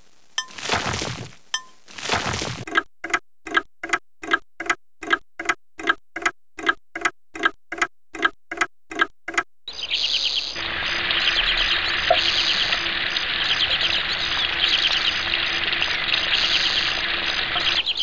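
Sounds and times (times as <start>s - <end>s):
clock ticking: 2.7s - 9.5s.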